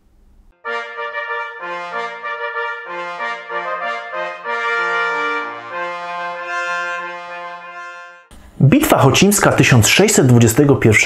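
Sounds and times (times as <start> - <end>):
brass fanfare: 0.6 - 8.3.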